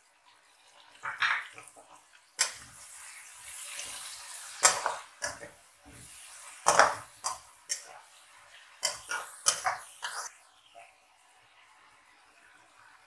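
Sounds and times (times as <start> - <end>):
vegetables sizzling in oil: 0.0 - 13.0
spatula scraping pan: 3.5 - 8.1, 8.8 - 10.3.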